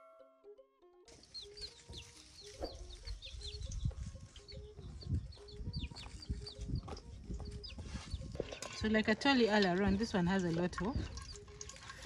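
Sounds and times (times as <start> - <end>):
chicks peeping: 1.2 - 8.4.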